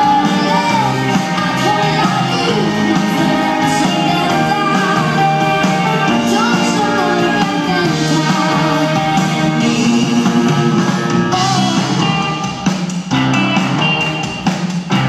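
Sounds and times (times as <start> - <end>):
woman singing: 0.0 - 10.3
live band playing pop: 0.0 - 15.0.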